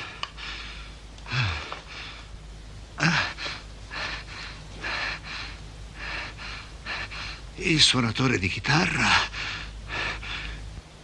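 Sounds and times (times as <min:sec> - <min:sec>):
man gasping and groaning: 0:01.3 - 0:01.8, 0:03.0 - 0:03.6.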